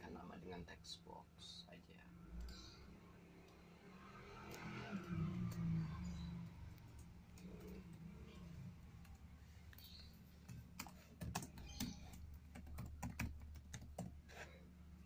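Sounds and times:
laptop keyboard typing: 4.3 - 14.4.

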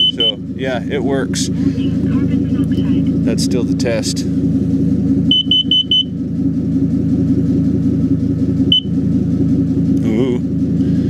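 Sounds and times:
smoke detector beeping: 0.0 - 0.4, 5.3 - 6.2, 8.7 - 9.0
truck engine idling: 0.0 - 11.0.

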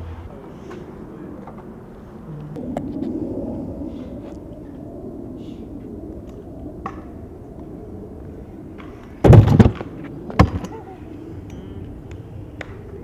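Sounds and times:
skateboard wheels rolling on concrete: 5.5 - 13.0
skateboard landing clatter: 9.2 - 10.8.

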